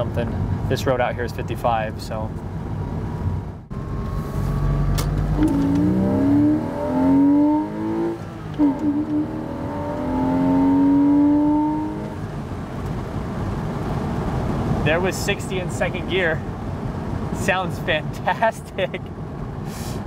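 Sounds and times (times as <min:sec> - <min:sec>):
car engine accelerating: 0:02.7 - 0:14.9.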